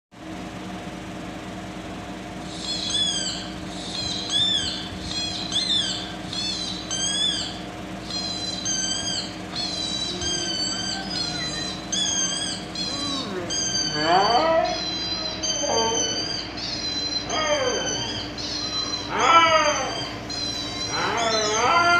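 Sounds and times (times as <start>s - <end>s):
steady low hum: 0.2s - 21.9s
dog whining through phone speaker: 8.2s - 21.9s.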